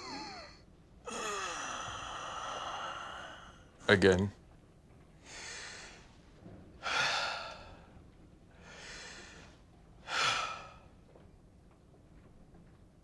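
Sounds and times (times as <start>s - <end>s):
man breathing deeply: 1.1s - 3.8s, 5.2s - 6.1s, 6.8s - 10.9s.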